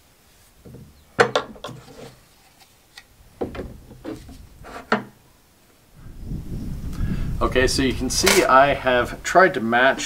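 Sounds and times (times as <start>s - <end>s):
plastic pipe fittings knocking on wood: 3.4s - 4.2s.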